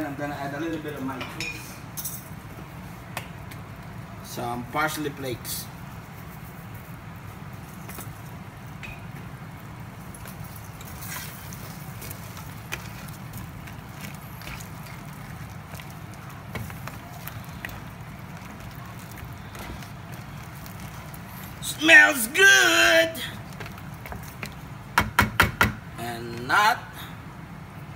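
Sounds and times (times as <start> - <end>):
soup boiling with bubbling pops: 7.4 - 21.6, 23.4 - 25.8.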